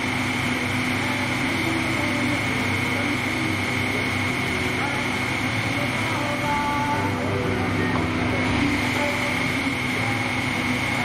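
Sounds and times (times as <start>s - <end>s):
diesel engine running: 0.0s - 11.0s
high-pitched whine: 0.0s - 11.0s.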